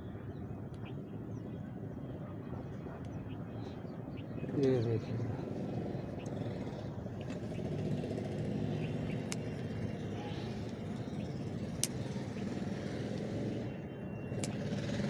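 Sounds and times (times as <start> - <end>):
pruning scissors snipping: 9.2 - 9.5, 11.8 - 12.0.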